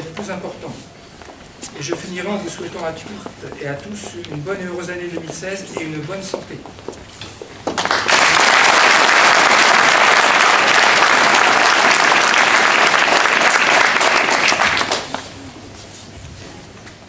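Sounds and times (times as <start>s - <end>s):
audience applauding: 7.7s - 15.3s.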